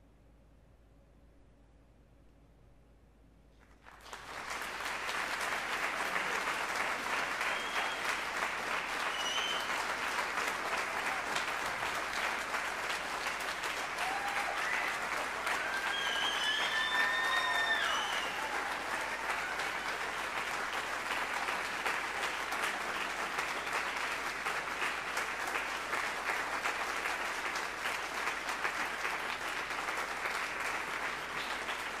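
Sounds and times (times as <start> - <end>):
audience applauding: 3.7 - 32.0
high cheers: 5.9 - 24.0.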